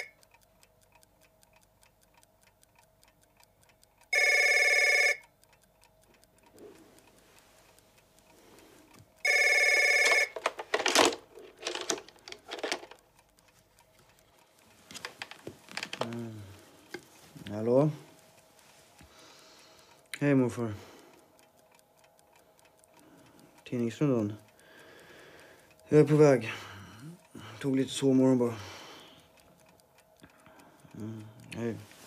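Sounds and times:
faint even ticking: 0.0s - 10.4s, 11.2s - 32.0s
telephone ringing: 4.1s - 5.2s, 9.2s - 12.8s
knocks and rustling of handling: 10.0s - 13.0s, 14.8s - 16.2s.

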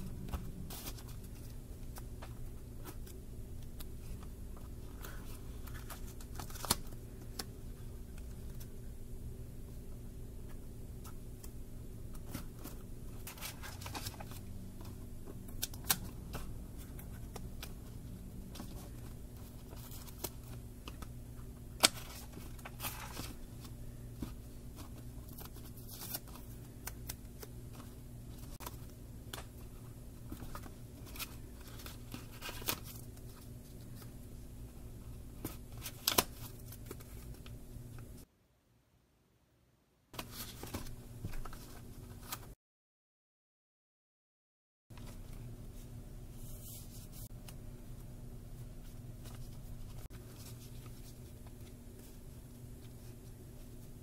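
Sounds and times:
steady low hum: 0.0s - 38.3s
paper and plastic rustling: 12.1s - 15.0s.

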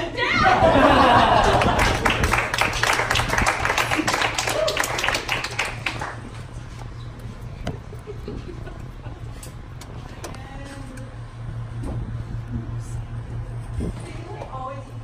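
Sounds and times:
low steady hum: 0.0s - 15.0s
hand clapping: 1.5s - 6.3s.

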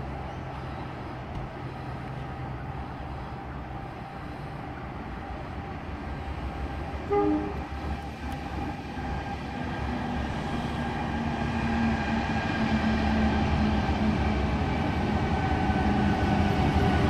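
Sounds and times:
diesel locomotive engine hum: 0.0s - 17.0s
train horn blast: 7.1s - 7.8s.

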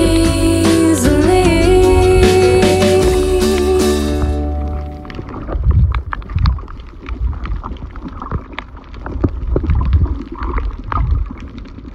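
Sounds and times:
underwater rumble of moving water: 4.2s - 11.9s
sharp underwater clicks and crackles: 4.7s - 11.9s.

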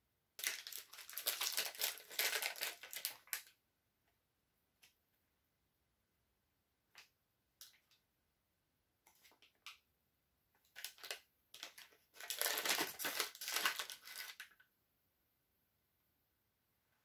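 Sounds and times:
plastic wrapper crinkling: 0.4s - 3.5s, 10.7s - 14.6s.

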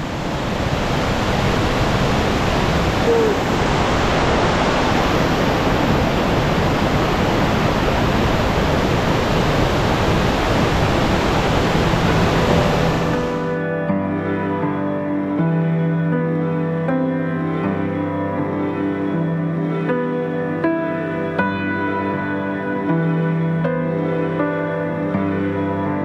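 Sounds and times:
waterfall rushing: 0.0s - 13.6s.

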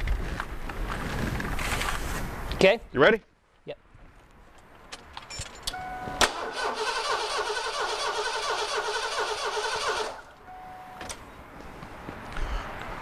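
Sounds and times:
engine cranking without firing: 6.2s - 10.3s.

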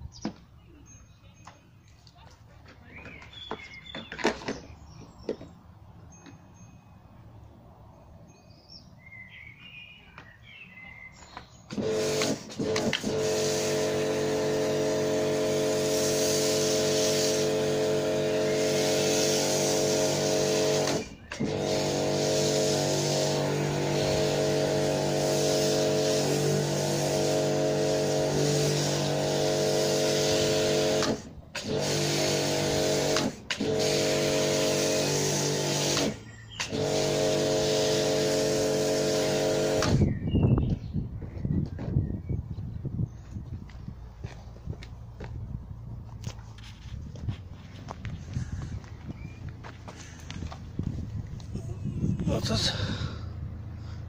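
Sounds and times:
pressure washer motor humming: 11.7s - 40.1s
hiss of foam lance spraying: 15.6s - 21.0s, 21.6s - 36.2s.

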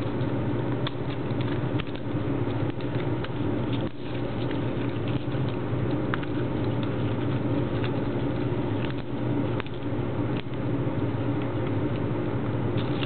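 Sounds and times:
parrot tearing paper: 0.0s - 9.8s
low hum: 0.0s - 13.0s.

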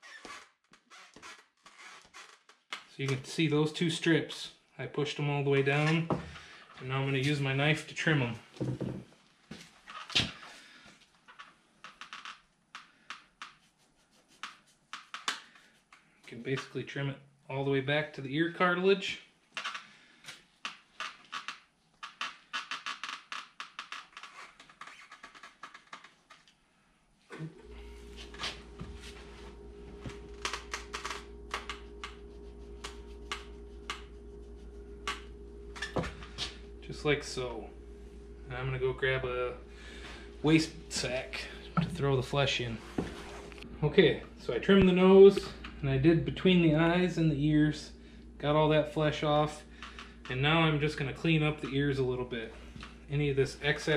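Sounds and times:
steady low hum: 27.3s - 53.9s.

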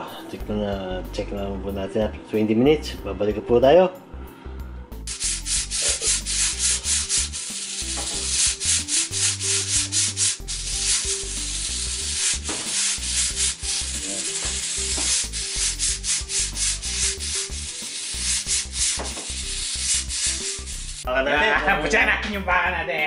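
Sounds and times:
pressure cooker hissing steam: 5.1s - 21.1s.

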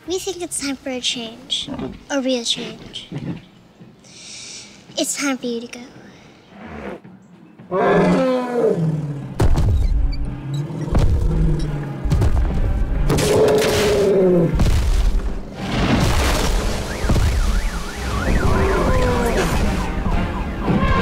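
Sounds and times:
heavy thumps: 9.4s - 10.1s, 10.9s - 13.3s
soundtrack music: 16.8s - 21.0s
elephant trumpeting: 18.2s - 20.1s.

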